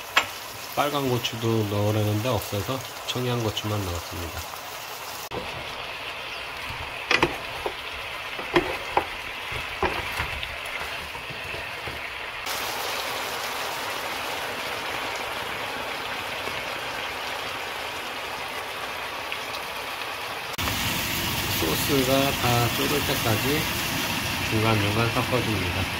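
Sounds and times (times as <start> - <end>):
sauce bubbling and sizzling: 0.0 - 25.9
wooden spoon knocking on pan: 6.7 - 12.2.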